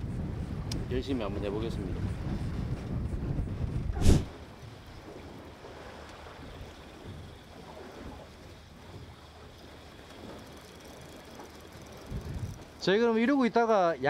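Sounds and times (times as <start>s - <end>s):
water noise: 0.0s - 14.0s
wind: 0.0s - 14.0s.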